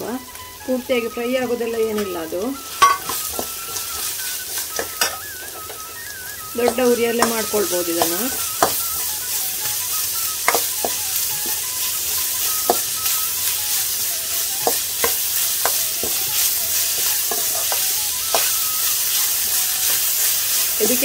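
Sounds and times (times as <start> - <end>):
onion sizzling in oil: 0.0 - 21.0
metal spoon scraping and clinking pan: 2.8 - 3.9, 17.0 - 18.5.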